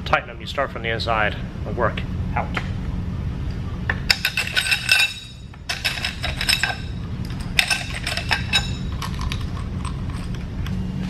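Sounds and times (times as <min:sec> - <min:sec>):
steady low hum: 0:00.0 - 0:11.0
metal tools clinking on bolts: 0:04.1 - 0:10.4.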